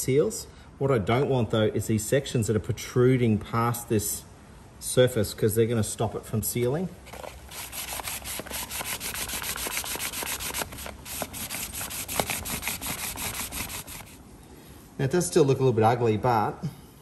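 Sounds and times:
sandpaper rubbing on plastic: 7.1 - 14.2.

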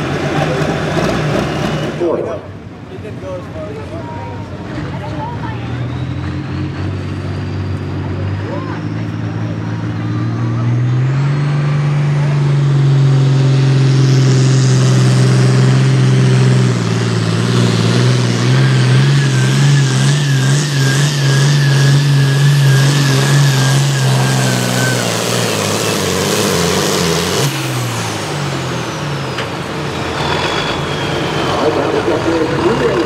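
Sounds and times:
tractor diesel engine under load: 0.0 - 33.0
high whine: 18.6 - 33.0.

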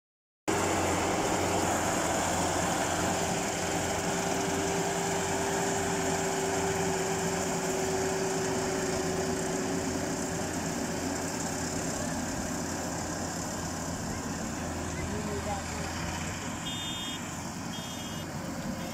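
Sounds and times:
combine harvester running: 0.5 - 18.9.

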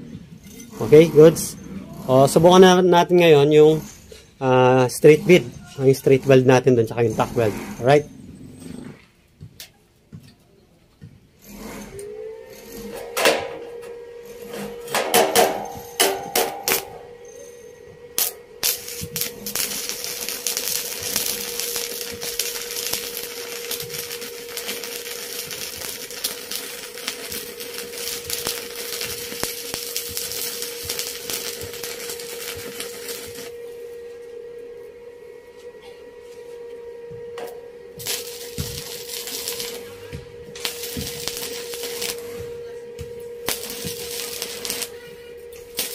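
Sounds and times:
welding arc crackling and sizzling: 0.0 - 8.1, 14.3 - 17.1, 18.1 - 33.6, 37.4 - 45.9.

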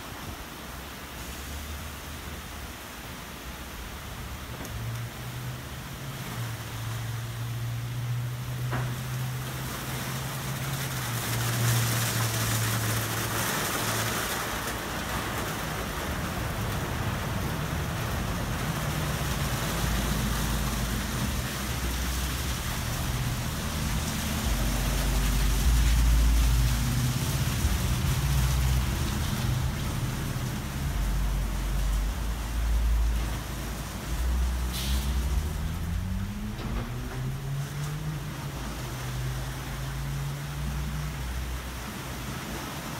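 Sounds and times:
water spray hissing: 9.1 - 38.1.

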